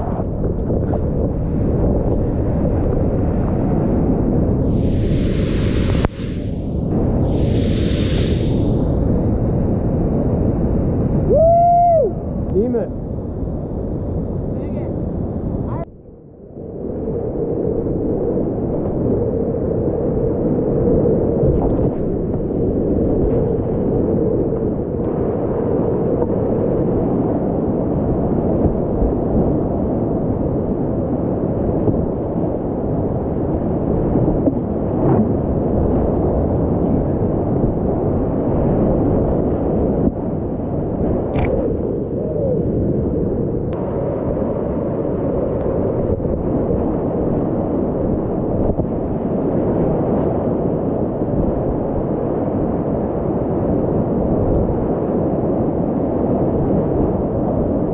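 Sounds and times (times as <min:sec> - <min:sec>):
rapids rushing: 0:04.6 - 0:09.0.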